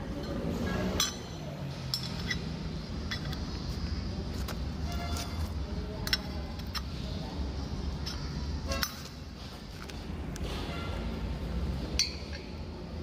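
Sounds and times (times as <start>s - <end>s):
light metallic clicks and clinks: 0.1s - 3.5s, 6.0s - 7.0s.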